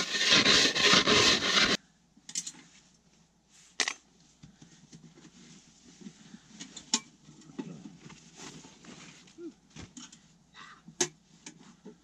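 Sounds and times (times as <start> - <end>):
camping gear rustling: 7.7 - 10.4.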